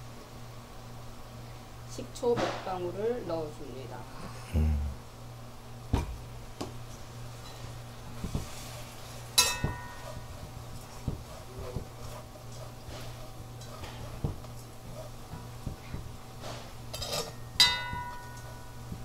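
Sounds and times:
steady low hum: 0.0 - 19.0
utensil clinking in frying pan: 9.4 - 10.0, 16.9 - 18.8.

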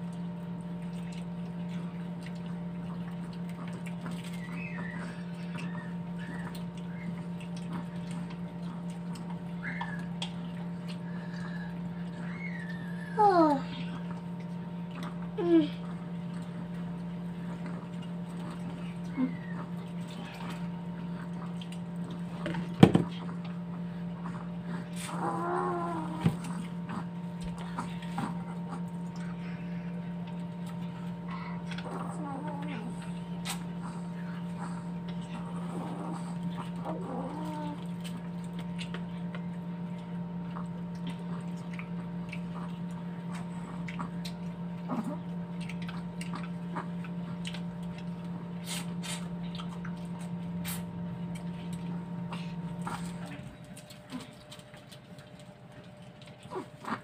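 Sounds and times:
wet chewing and lip smacks: 0.0 - 12.8, 13.9 - 25.1, 32.6 - 35.5, 37.4 - 57.0
eating mouth sounds: 0.0 - 57.0
low electrical hum: 0.0 - 57.0
person humming: 15.4 - 15.8.

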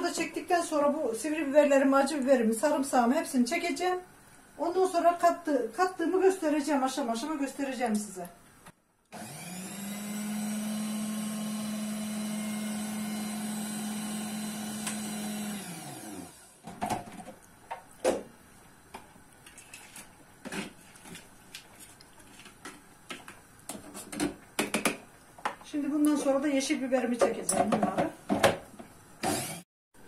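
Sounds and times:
food processor motor running: 9.1 - 16.6, 29.2 - 29.6.

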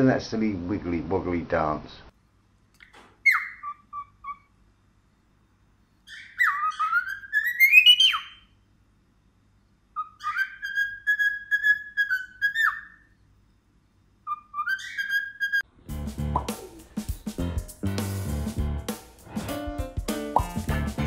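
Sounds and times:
cockatiel whistling a tune: 3.2 - 4.5, 6.1 - 8.4, 10.0 - 13.0, 14.2 - 15.6.

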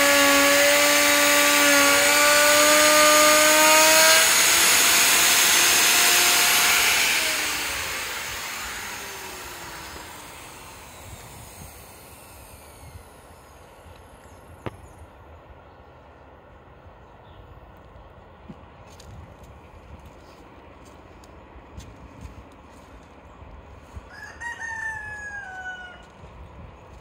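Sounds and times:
electric router whining: 0.0 - 14.3.

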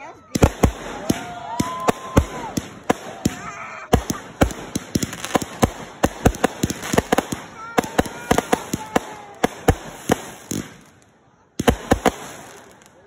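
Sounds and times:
crackling firework stars: 0.0 - 13.0
fireworks bangs: 0.2 - 13.0.

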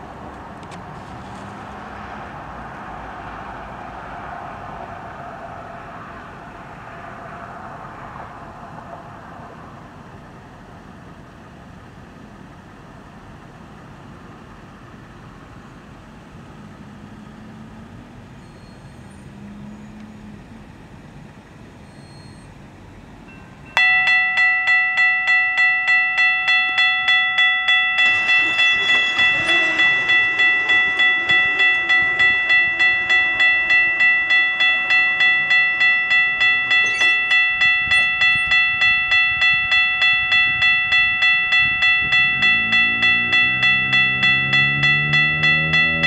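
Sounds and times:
approaching train rumble: 0.0 - 22.0, 22.7 - 46.0
railroad crossing bell ringing: 23.3 - 46.0.

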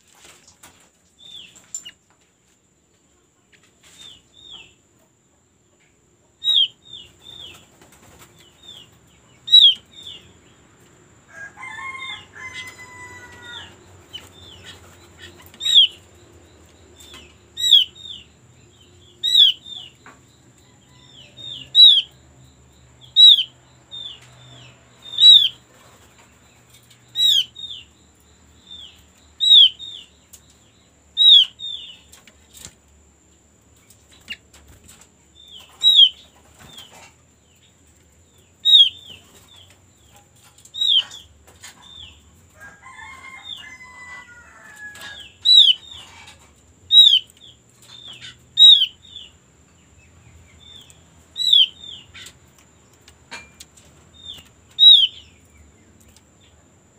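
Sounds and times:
songbird whistling: 9.5 - 9.8, 21.6 - 22.2, 23.1 - 23.5, 25.1 - 25.6, 29.4 - 29.8, 31.2 - 31.6, 38.7 - 39.0, 45.5 - 45.9, 47.0 - 47.3, 48.6 - 49.0, 54.8 - 55.2
rooster crowing: 11.2 - 13.9, 20.6 - 22.0, 42.5 - 45.8.

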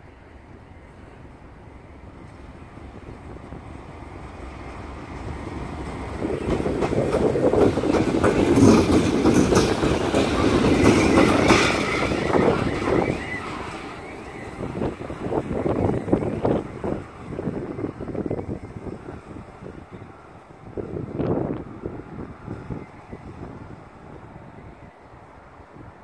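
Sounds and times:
wheels clicking over rail joints: 5.7 - 14.2.

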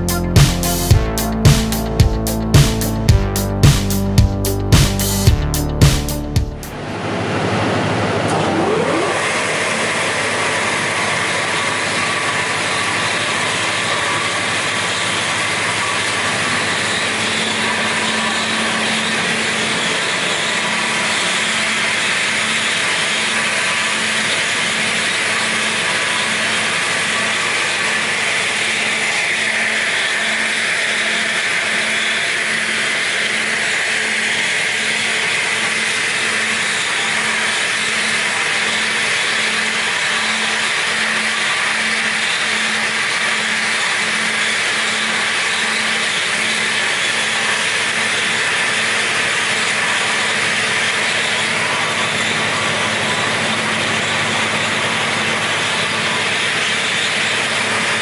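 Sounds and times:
low throbbing hum: 0.0 - 9.7
edging saw running: 0.0 - 58.0.

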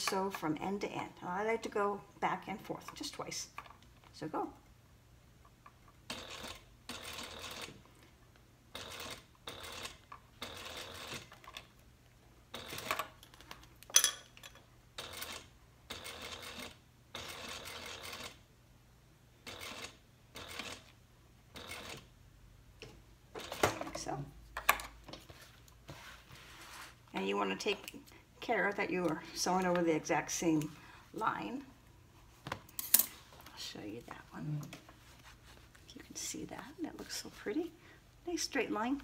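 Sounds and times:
sewing machine stitching: 6.1 - 7.8, 8.7 - 11.6, 12.5 - 13.1, 19.5 - 20.9, 21.6 - 22.1, 23.4 - 23.8.

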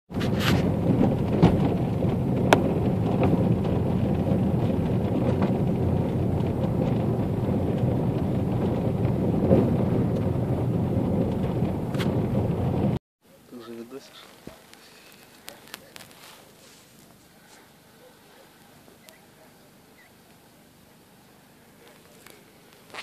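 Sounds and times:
gravel clicks and knocks: 0.1 - 13.0, 14.2 - 17.2, 21.8 - 23.0
vehicle rolling on gravel road: 0.1 - 13.0, 14.0 - 17.3, 21.3 - 23.0.

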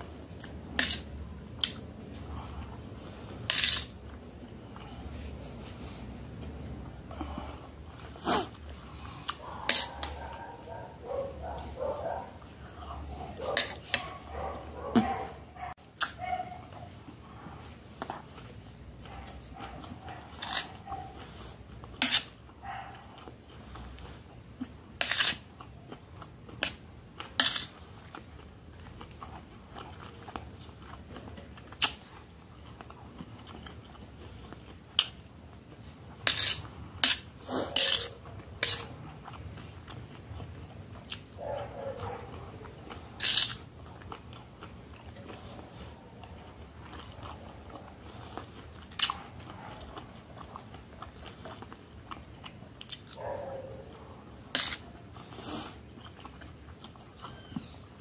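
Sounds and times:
close chewing: 0.0 - 58.0.

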